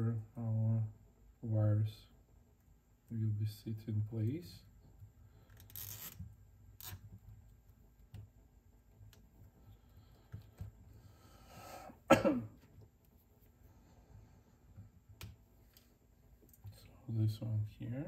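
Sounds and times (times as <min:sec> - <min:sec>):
zip ties ratcheting: 0:05.5 - 0:06.2, 0:06.8 - 0:07.0.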